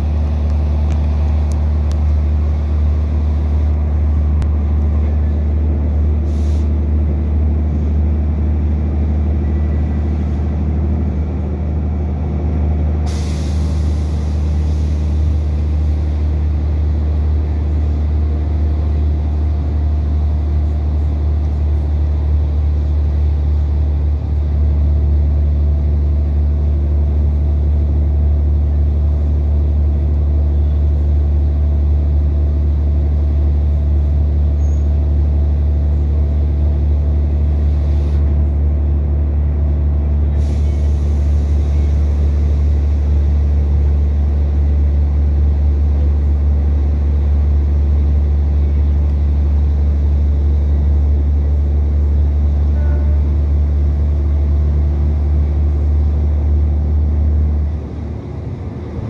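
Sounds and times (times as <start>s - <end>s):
diesel engine drone: 0.0s - 59.0s
train wheels on rail: 0.0s - 59.0s
air hiss: 6.2s - 6.7s, 13.1s - 15.3s.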